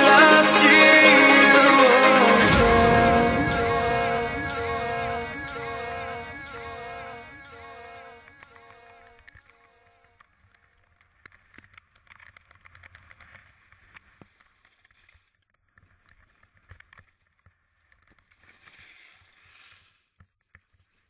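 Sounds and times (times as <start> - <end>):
skis carving through powder snow: 18.3 - 20.0.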